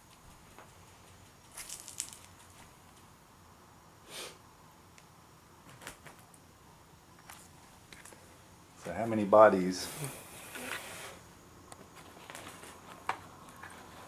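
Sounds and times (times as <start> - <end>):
short hissing puff: 4.0 - 4.4, 9.8 - 11.2.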